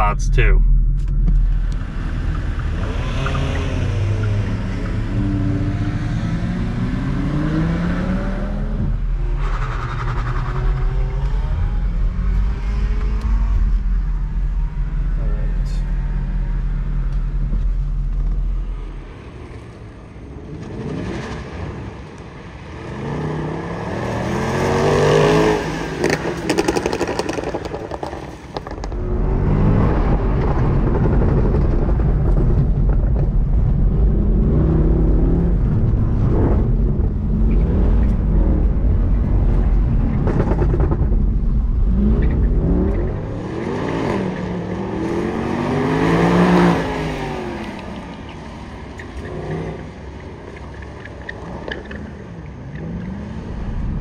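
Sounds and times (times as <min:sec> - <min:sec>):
heavy low rumble: 0:00.0 - 0:07.1, 0:08.1 - 0:20.5, 0:27.5 - 0:48.9, 0:52.0 - 0:54.0
car engine revving: 0:00.0 - 0:54.0.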